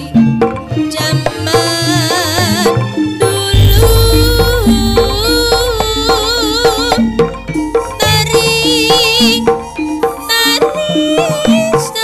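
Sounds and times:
low gong hum: 3.5s - 9.6s
drum strokes: 3.5s - 10.3s
wavering melody line: 3.5s - 11.2s.

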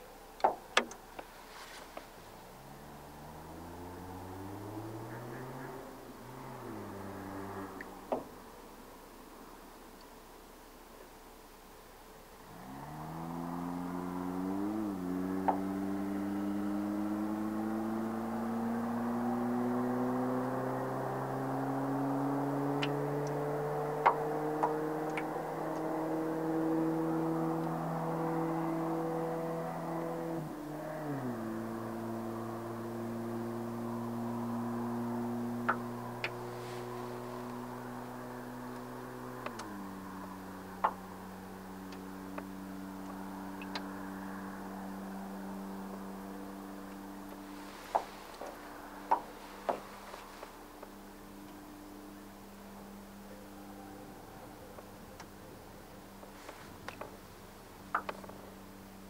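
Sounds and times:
boat motor humming: 0.0s - 9.2s, 11.7s - 59.0s
sharp clicks and taps: 0.4s - 1.3s.

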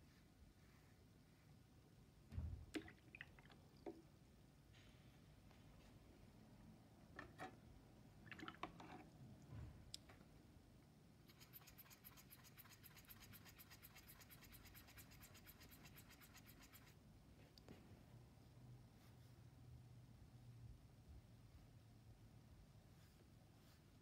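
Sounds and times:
paintbrush scratching in paint pan: 11.2s - 17.0s.

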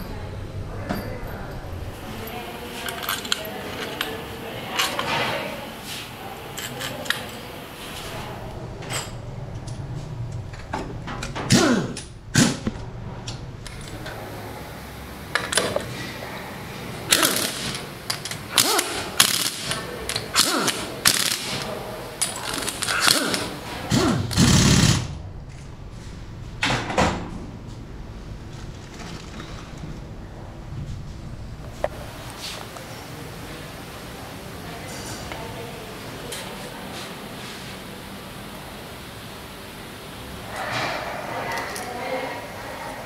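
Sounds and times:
workshop background noise: 0.0s - 43.0s
metal bolts clinking: 2.2s - 5.3s
power nut runner driving bolts: 17.1s - 25.0s.

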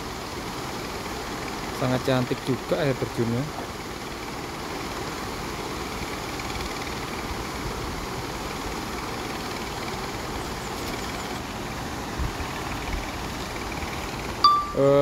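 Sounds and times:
river rushing over rocks: 3.7s - 15.0s.

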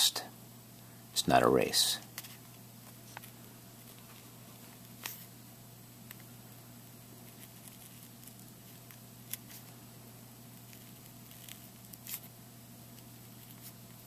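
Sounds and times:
pen scratching on foil: 7.2s - 9.6s, 10.5s - 12.3s.

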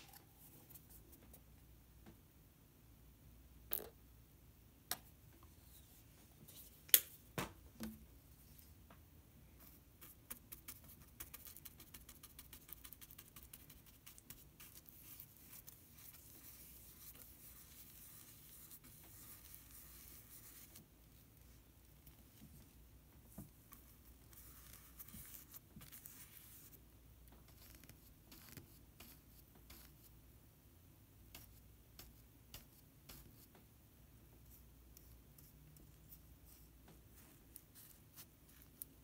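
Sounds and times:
paintbrush strokes: 0.0s - 1.5s, 9.4s - 26.8s, 34.4s - 39.0s.

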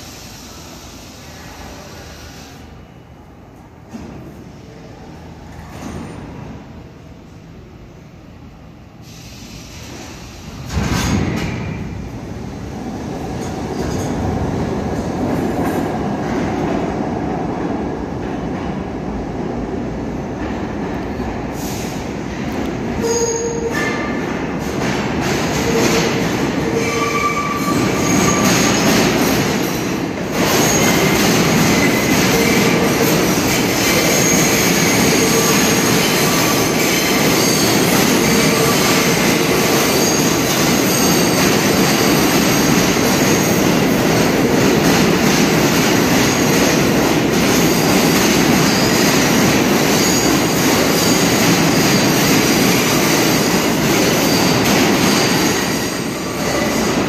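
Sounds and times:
subway train rumble: 0.0s - 57.0s
train wheel squeals: 23.0s - 24.2s, 25.5s - 43.8s, 46.0s - 57.0s.

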